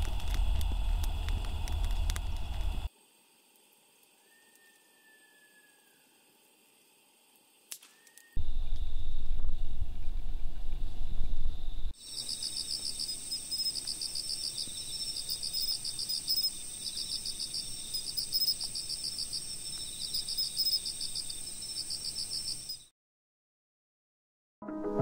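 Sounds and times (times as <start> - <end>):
low rumble: 0.0 - 2.9, 8.4 - 11.9
crickets chirping: 0.0 - 22.9.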